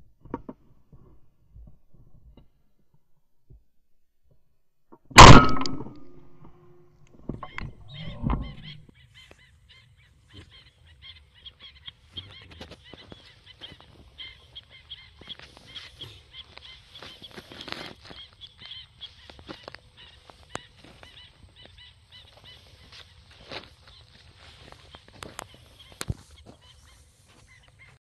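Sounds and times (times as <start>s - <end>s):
shotgun shot: 5.2s - 6.2s
high chirping: 7.4s - 8.9s.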